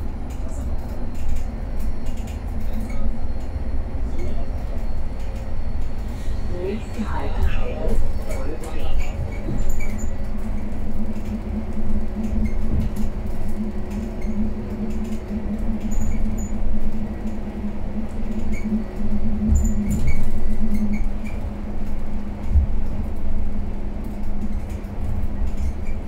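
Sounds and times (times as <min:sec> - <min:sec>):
bus interior rumble and hum: 0:00.0 - 0:26.0
faint squeaks and ticks: 0:08.2 - 0:11.4, 0:18.3 - 0:18.9, 0:19.6 - 0:21.4, 0:25.4 - 0:26.0.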